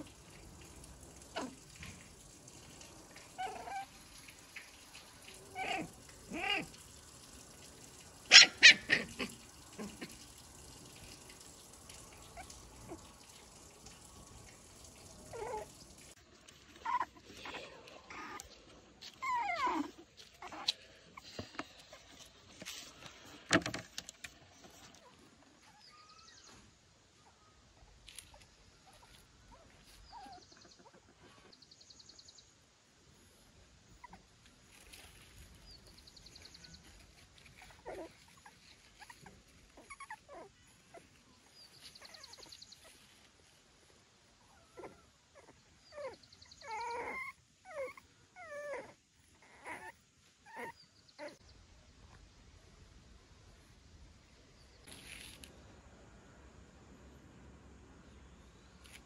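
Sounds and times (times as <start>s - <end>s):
dog whimpering and whining: 15.3s - 15.7s, 16.8s - 18.4s, 19.0s - 21.3s, 37.6s - 41.1s, 44.4s - 51.4s.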